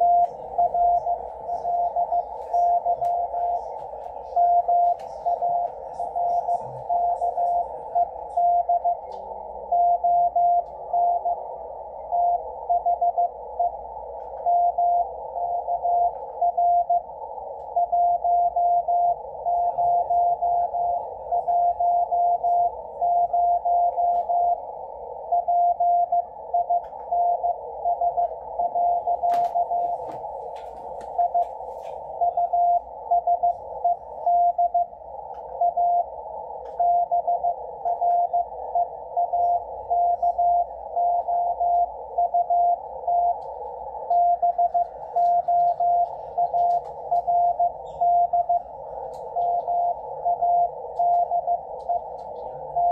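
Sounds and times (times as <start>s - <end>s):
radio hiss: 0.0s - 25.3s
morse code tone: 0.0s - 52.9s.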